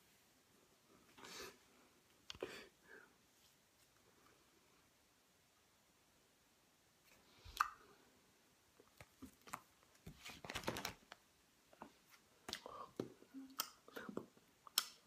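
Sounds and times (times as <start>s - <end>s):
paper rustling: 9.2s - 11.2s.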